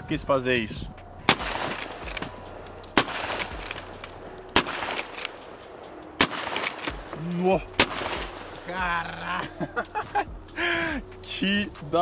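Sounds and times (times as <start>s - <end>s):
rifle shots: 1.2s - 8.7s.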